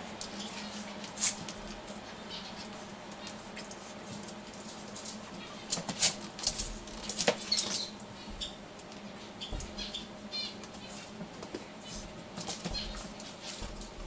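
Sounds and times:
dog paws scrabbling: 0:00.2 - 0:14.0.

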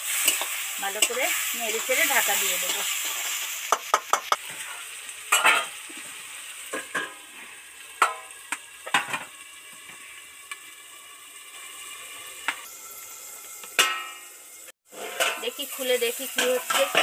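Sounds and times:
metal spoon scraping a pan: 0:00.0 - 0:05.8, 0:13.5 - 0:17.0
onion and tomato sizzling in oil: 0:00.0 - 0:17.0
metal lid clanking on pan: 0:05.3 - 0:05.8, 0:06.7 - 0:07.2, 0:08.0 - 0:09.3, 0:13.7 - 0:14.3, 0:16.4 - 0:17.0.

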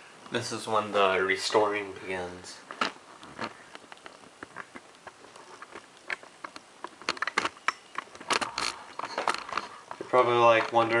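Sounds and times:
light clicks and taps: 0:02.7 - 0:11.0.

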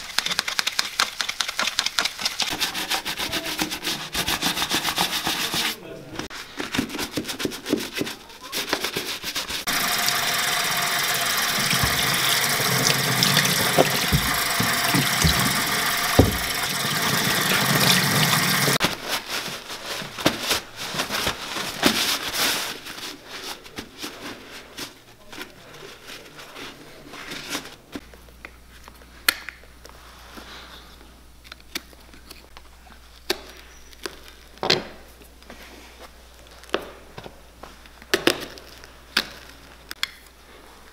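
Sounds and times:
stiff brush scrubbing leather: 0:00.4 - 0:05.8, 0:07.1 - 0:18.8
towel rubbing boot: 0:06.8 - 0:18.8
tap running into sink: 0:09.7 - 0:18.8.

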